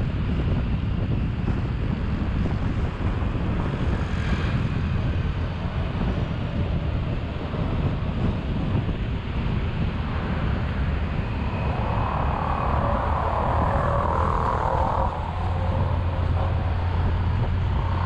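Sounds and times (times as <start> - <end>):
road traffic noise: 0.0 - 18.0
wind buffeting microphone: 0.0 - 18.0
faint brief whine: 11.2 - 18.0.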